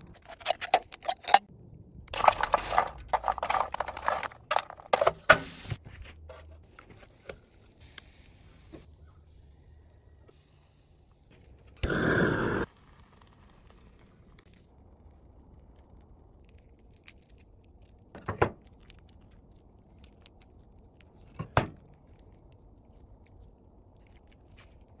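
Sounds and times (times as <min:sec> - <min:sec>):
chicken skin crackling and tearing: 0:13.9 - 0:25.0.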